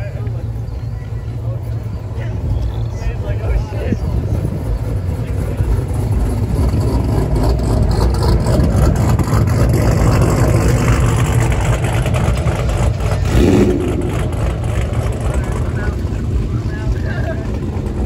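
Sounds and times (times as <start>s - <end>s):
car engine revving: 4.6s - 18.0s.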